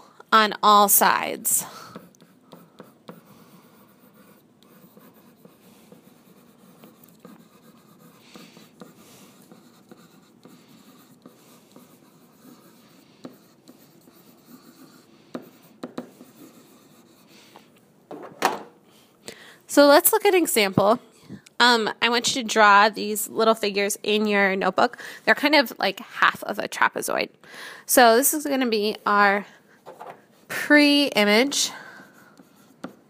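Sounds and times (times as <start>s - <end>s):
pen scratching on paper: 1.8s - 17.6s, 32.0s - 33.0s.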